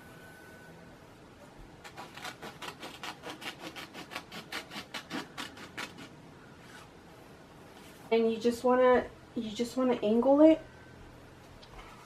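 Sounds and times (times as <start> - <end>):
scissors snipping paper: 1.8 - 6.1.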